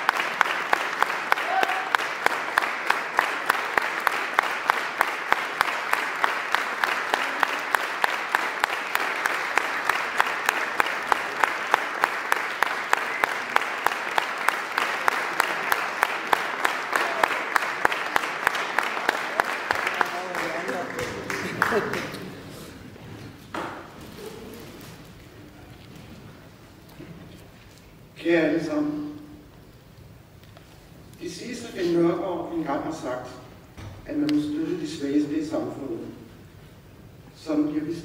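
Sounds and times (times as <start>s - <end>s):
rhythmic sharp claps: 0.0s - 22.5s
audience applauding: 0.0s - 25.2s.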